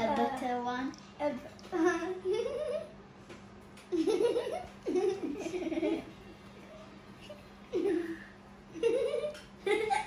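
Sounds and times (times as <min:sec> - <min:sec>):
girls giggling and laughing: 0:03.9 - 0:06.2, 0:07.2 - 0:10.0.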